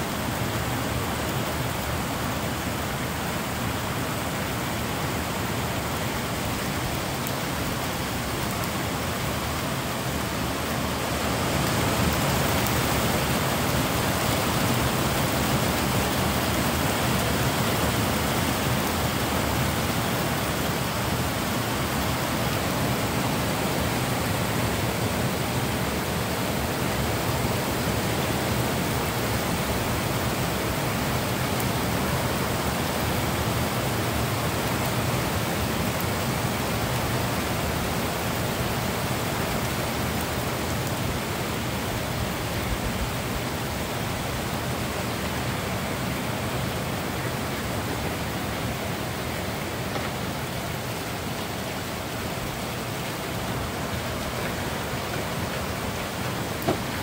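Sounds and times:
heavy rain pouring: 0.0 - 57.0.

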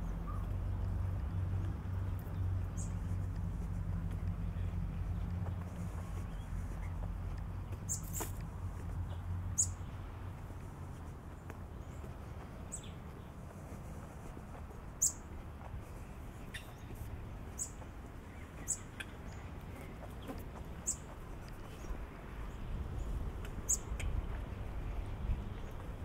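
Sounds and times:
low outdoor rumble: 0.0 - 26.0
bird chirping: 2.3 - 3.1, 7.7 - 8.3, 9.1 - 9.9, 16.4 - 21.1, 23.6 - 24.2.

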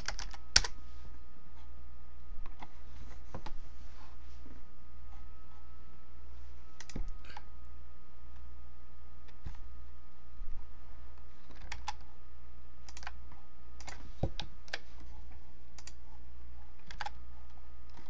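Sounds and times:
keyboard typing: 0.0 - 0.8, 11.4 - 12.1, 12.8 - 13.2, 16.8 - 17.2
steady low hum: 0.0 - 18.0.

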